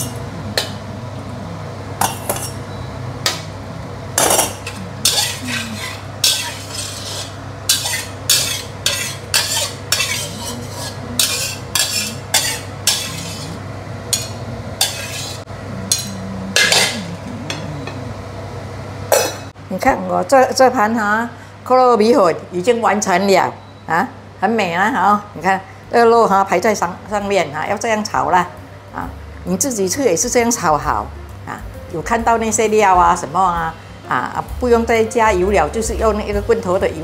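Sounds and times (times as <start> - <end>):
steady low hum: 0.0 - 22.7
spatula scraping metal wok: 4.3 - 17.6.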